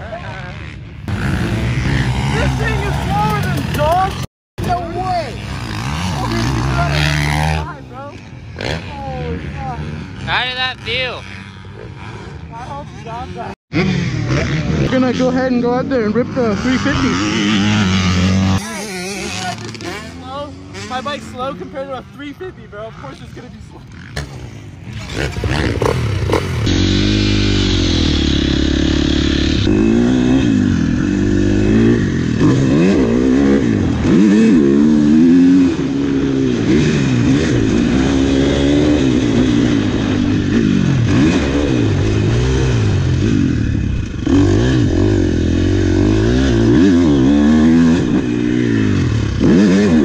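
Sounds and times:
dirt bike engine revving: 0.0s - 50.0s.

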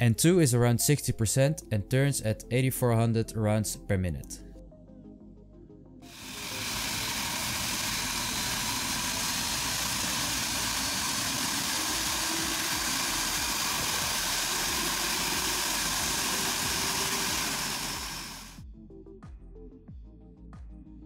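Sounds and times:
jet engine idling: 6.1s - 18.6s.

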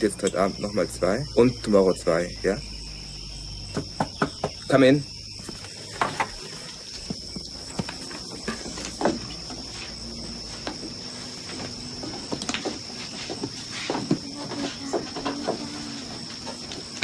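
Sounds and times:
crickets chirring: 0.0s - 17.0s
knocks on wooden floor: 3.7s - 4.7s
footsteps on wooden floor: 5.3s - 17.0s.

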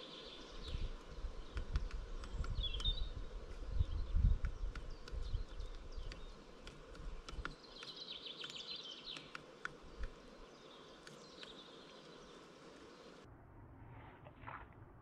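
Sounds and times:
birds singing: 0.0s - 13.2s
wind rumble on microphone: 0.6s - 6.2s
woodpecker tapping on tree trunk: 1.4s - 10.2s.

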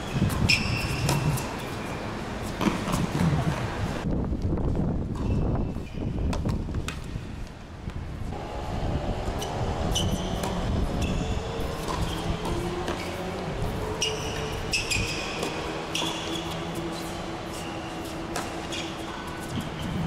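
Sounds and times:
shoe squeaks on court: 0.0s - 2.0s, 5.2s - 6.5s, 9.4s - 13.3s, 13.9s - 20.0s
tennis ball bounces: 0.2s - 1.8s, 2.6s - 3.6s, 9.9s - 13.2s, 14.0s - 19.8s
steady low hum: 7.0s - 20.0s.

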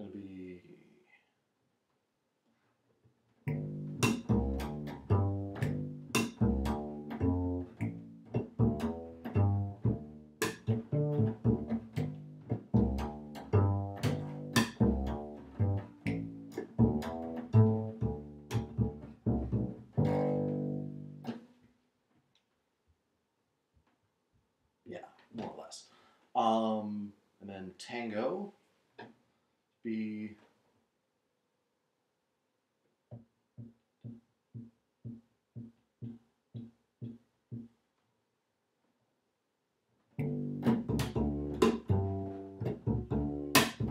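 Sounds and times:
plucked bass line: 3.5s - 21.4s, 40.2s - 43.9s.

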